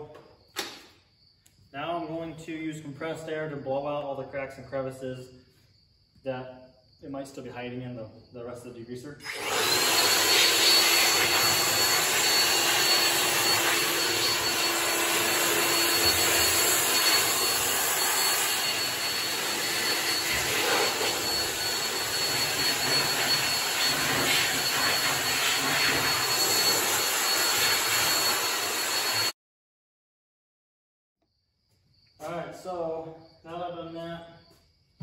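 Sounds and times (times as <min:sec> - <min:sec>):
air blower rushing with whine: 0:09.2 - 0:29.3.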